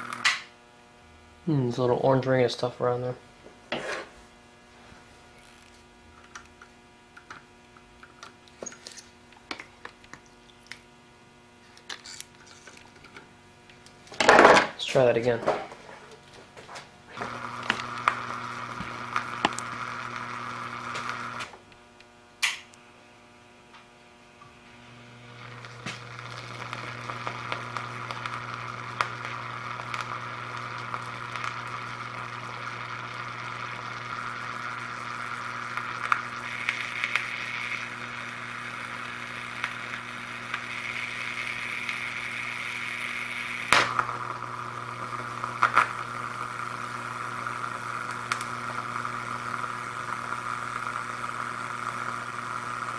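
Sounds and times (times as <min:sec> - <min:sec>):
low mains hum: 0:00.0 - 0:52.9
salt water sizzling: 0:17.1 - 0:21.6, 0:24.6 - 0:52.9
single click: 0:22.4 - 0:22.8.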